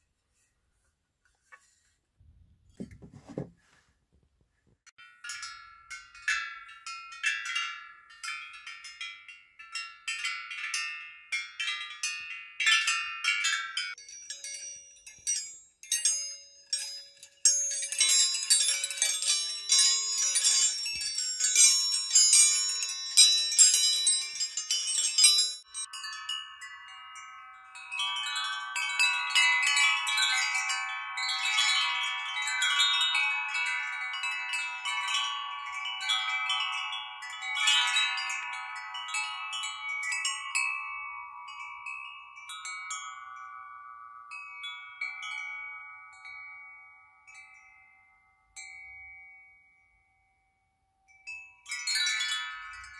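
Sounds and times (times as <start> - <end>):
wind chime tubes knocking: 5.0 - 29.0
wind chime ringing tones: 5.0 - 52.9.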